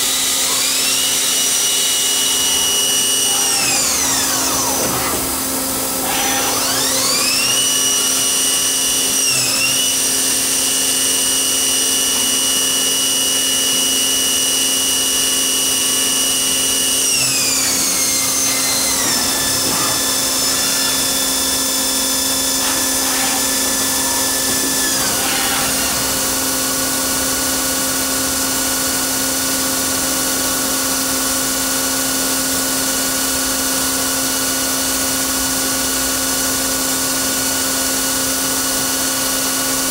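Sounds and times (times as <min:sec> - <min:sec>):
lathe spindle whining: 0:00.0 - 0:29.2.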